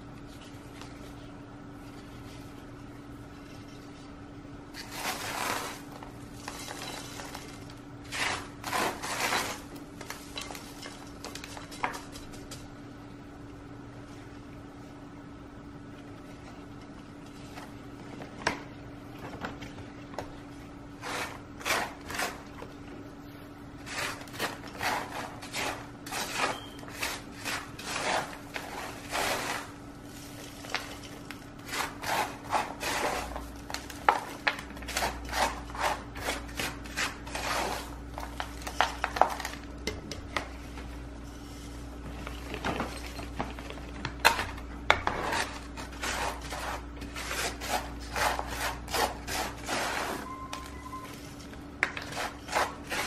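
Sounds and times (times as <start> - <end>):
hands packing bark potting mix: 4.8 - 12.7, 23.8 - 53.0.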